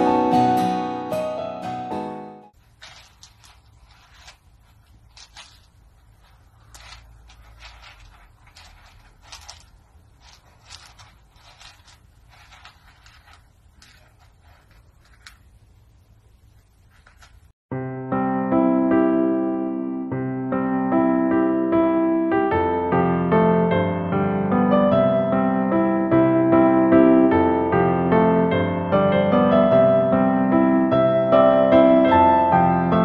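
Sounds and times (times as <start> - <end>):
kitten scratching litter pellets: 2.6 - 17.6.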